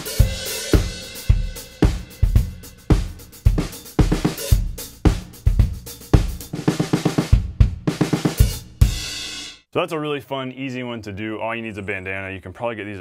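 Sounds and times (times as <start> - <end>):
drum kit groove: 0.0 - 9.7.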